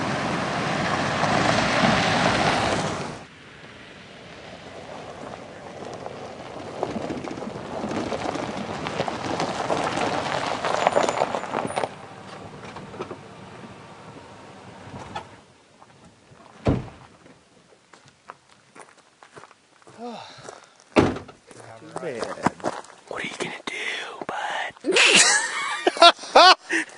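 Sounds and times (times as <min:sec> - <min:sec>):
tyres crunching on gravel: 0:04.2 - 0:23.6
heavy thump: 0:16.6 - 0:17.4, 0:21.0 - 0:21.4.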